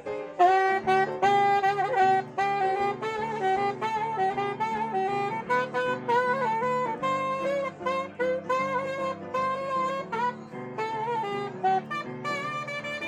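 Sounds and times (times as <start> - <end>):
rhythmic accompaniment: 0.0 - 13.0
saxophone melody: 0.0 - 13.0.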